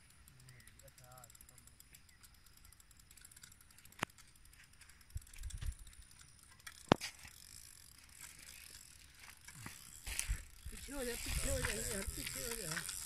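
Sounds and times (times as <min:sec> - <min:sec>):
fishing reel ticking: 0:00.0 - 0:13.0
reel clicks: 0:00.0 - 0:13.0.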